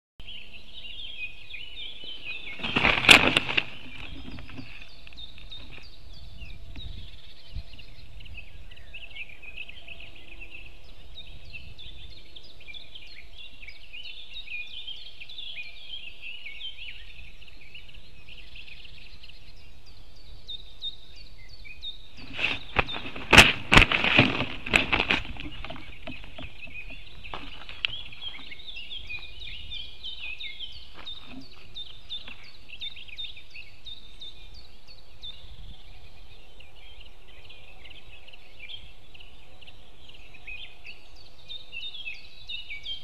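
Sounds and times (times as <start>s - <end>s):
songbirds singing: 0.2s - 43.0s
wings flapping and sticks rustling: 2.2s - 5.9s, 22.1s - 29.3s, 30.2s - 32.5s.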